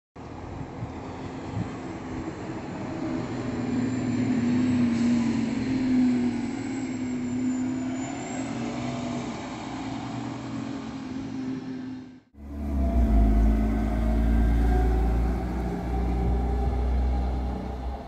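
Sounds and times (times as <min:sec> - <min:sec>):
bus engine driving past: 0:00.2 - 0:18.0.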